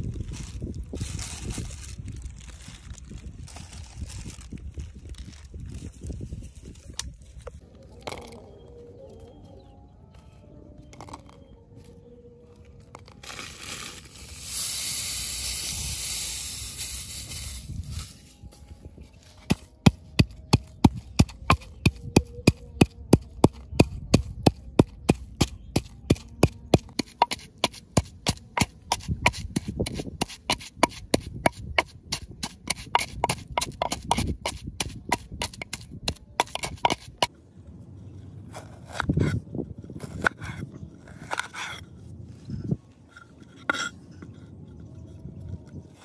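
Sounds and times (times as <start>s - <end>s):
pestle pounding in wooden mortar: 19.5s - 37.3s.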